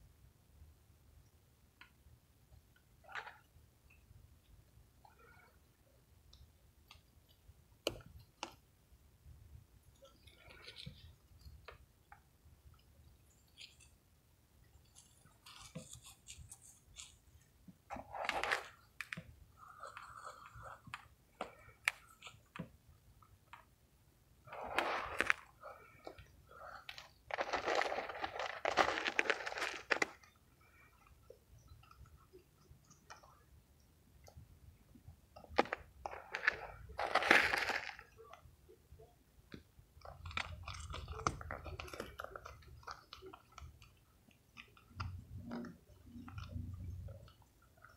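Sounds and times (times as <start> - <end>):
mothballs crunching: 24.5 - 32.1, 35.4 - 38.4, 39.9 - 47.9.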